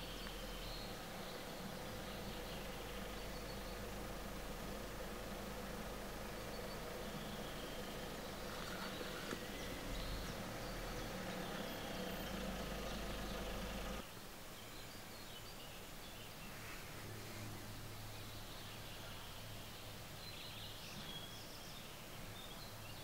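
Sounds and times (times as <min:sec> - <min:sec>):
low hum: 0:00.0 - 0:14.0.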